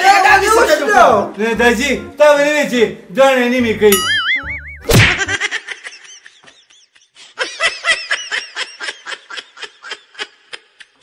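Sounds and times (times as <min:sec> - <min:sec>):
person laughing: 0:05.0 - 0:11.0.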